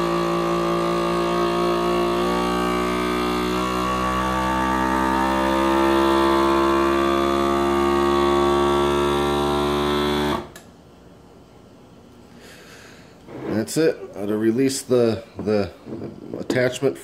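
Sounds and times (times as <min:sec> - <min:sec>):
vacuum sealer pump running: 0:00.0 - 0:10.6.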